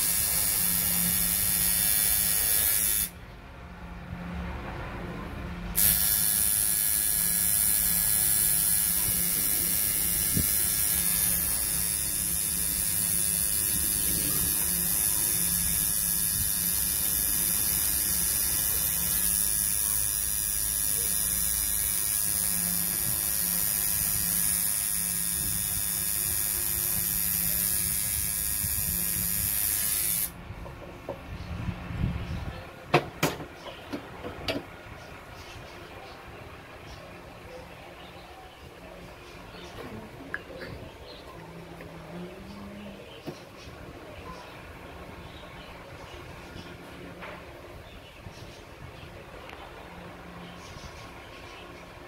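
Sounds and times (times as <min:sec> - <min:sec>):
tattoo machine buzzing: 0:00.0 - 0:03.2, 0:05.7 - 0:30.4.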